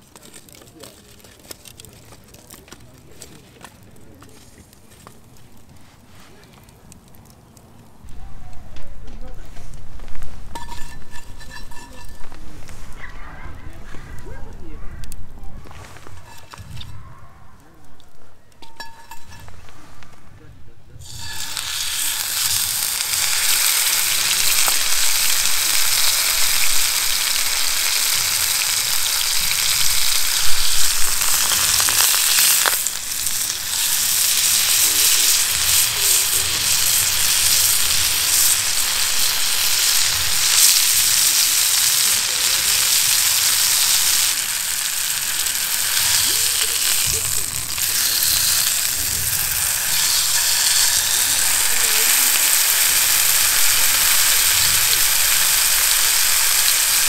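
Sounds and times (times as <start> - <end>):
beef sizzling in a skillet: 10.4 - 13.0, 16.0 - 17.0, 18.6 - 19.6, 21.0 - 57.0.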